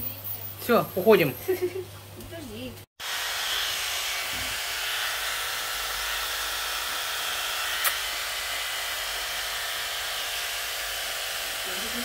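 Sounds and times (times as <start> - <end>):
blow dryer running: 3.0 - 12.0
sharp click: 7.8 - 8.0.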